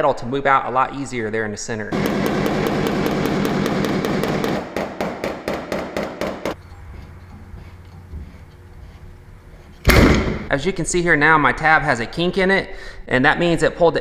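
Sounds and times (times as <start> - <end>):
hammer tapping sheet metal: 2.0 - 6.6.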